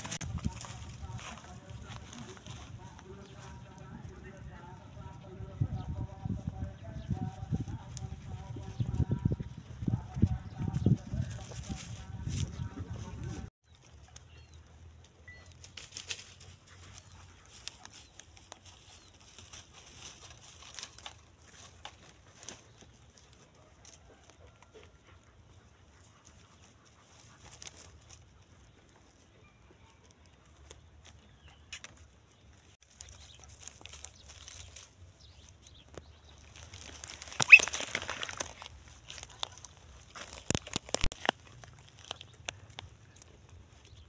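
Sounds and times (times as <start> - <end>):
dog rustling in dry twigs: 15.6 - 24.0, 32.8 - 35.7, 36.3 - 43.9.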